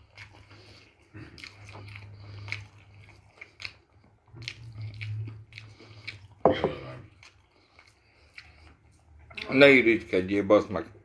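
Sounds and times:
wet mouth clicks and smacks: 0.0s - 6.4s
person chewing food: 0.0s - 9.8s.

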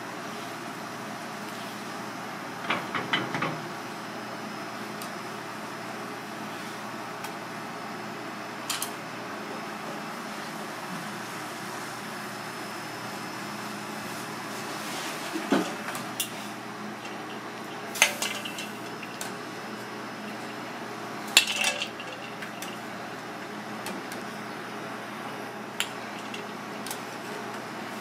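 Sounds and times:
metal scoop clinking on bowl: 17.0s - 19.4s, 21.4s - 22.9s.

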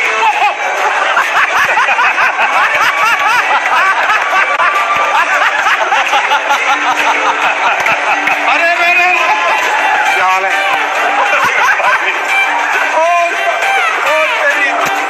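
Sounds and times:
audience cheering and laughing: 0.0s - 15.0s.

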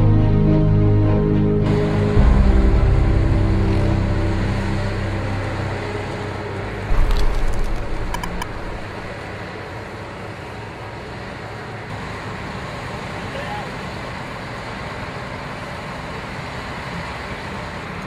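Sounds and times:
construction machinery noise: 1.6s - 18.0s
low thud: 6.9s - 9.2s
sharp clicks: 6.9s - 9.2s.

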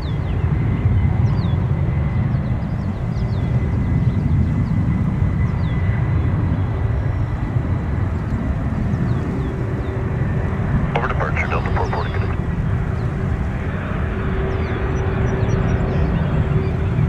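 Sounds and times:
jet engines rumbling: 6.0s - 17.0s.

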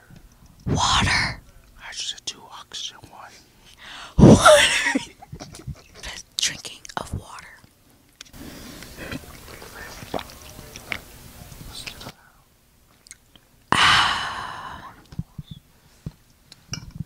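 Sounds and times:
sipping and swallowing: 8.8s - 11.0s.

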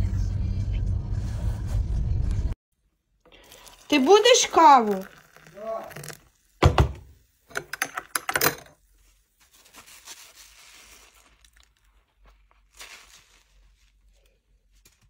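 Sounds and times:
wet sponge squeeze: 3.3s - 6.6s, 8.8s - 15.0s
thud: 6.6s - 7.0s
metal spoon clinking glass mug: 7.5s - 8.7s.

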